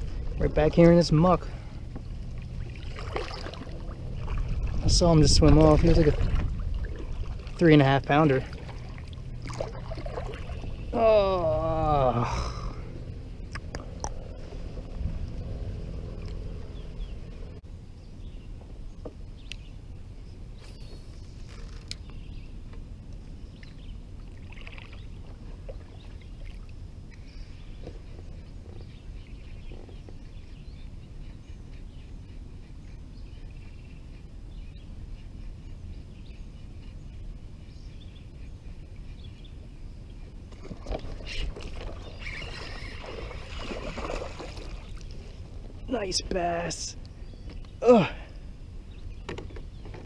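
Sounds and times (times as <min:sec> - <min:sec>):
low rumble: 0:00.0 - 0:21.4
faint bird chirps: 0:25.9 - 0:45.1.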